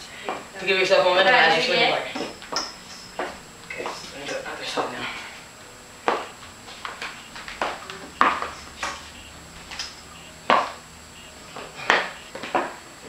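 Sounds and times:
boot heels clacking on tiles: 6.0 - 10.8.

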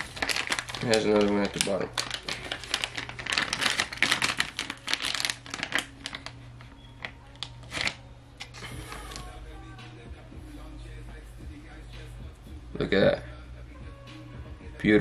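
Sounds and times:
plastic packaging crinkling: 0.0 - 9.4.

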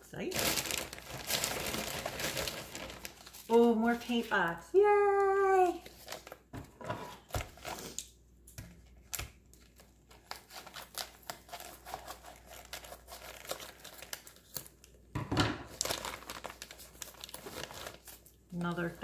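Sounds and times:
plastic wrapping crinkling and tearing: 0.2 - 6.5, 9.0 - 15.0, 15.6 - 19.0.

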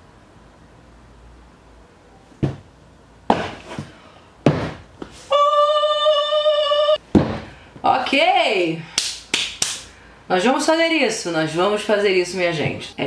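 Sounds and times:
hard thuds: 2.4 - 2.7, 3.3 - 5.2, 7.0 - 7.6.

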